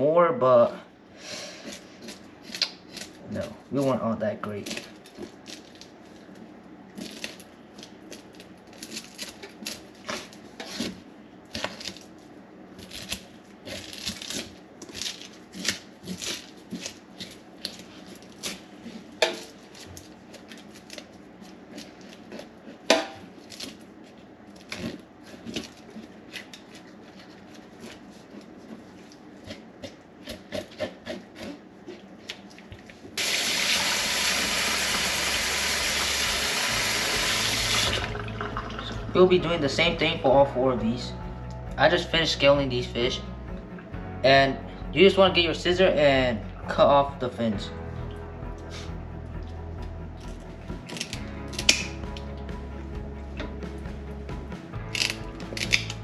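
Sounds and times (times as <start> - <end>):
faucet water running into sink: 33.2 - 39.3.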